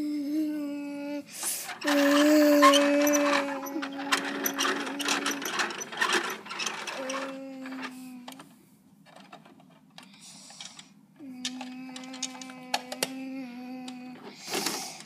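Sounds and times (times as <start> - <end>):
toy truck plastic clicking: 9.1 - 13.2.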